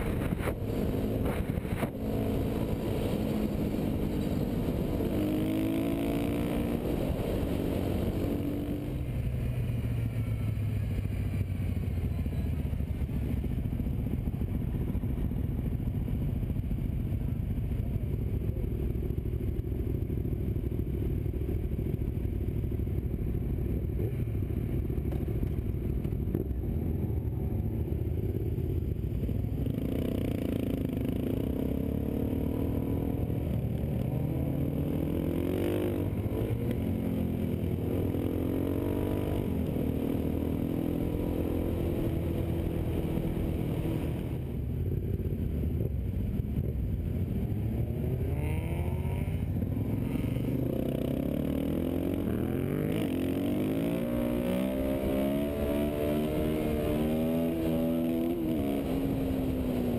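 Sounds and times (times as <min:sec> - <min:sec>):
wind rumble: 0:00.0 - 0:09.8
motorcycle engine accelerating: 0:00.0 - 0:59.9.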